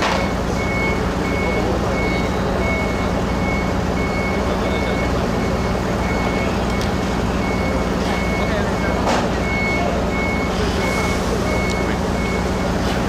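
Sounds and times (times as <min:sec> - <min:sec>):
diesel engine drone: 0:00.0 - 0:13.0
warning beeper beeping: 0:00.0 - 0:13.0.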